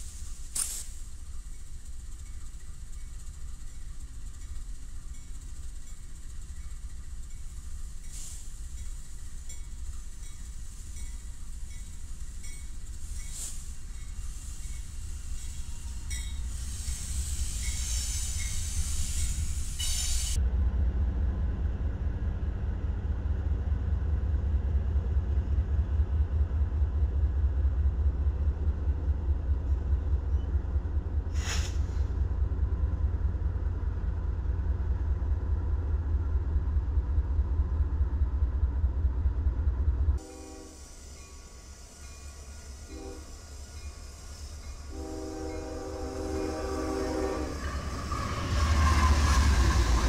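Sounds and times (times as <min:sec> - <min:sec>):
train hissing: 0:00.0 - 0:20.4, 0:30.2 - 0:38.0, 0:39.6 - 0:50.0
locomotive engines rumbling: 0:00.0 - 0:50.0.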